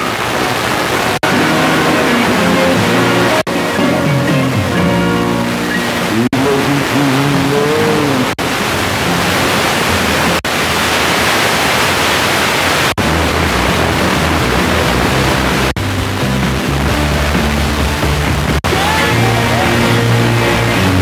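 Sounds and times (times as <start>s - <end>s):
faint radio station audio: 0.0s - 21.0s
radio static hiss: 0.0s - 21.0s
low pulsing bass: 13.0s - 21.0s.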